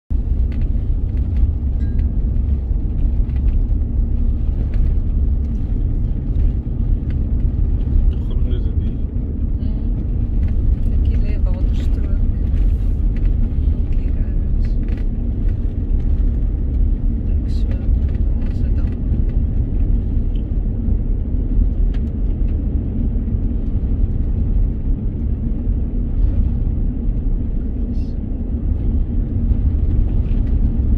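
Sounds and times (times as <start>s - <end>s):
tyres rumbling on gravel: 0.1s - 30.9s.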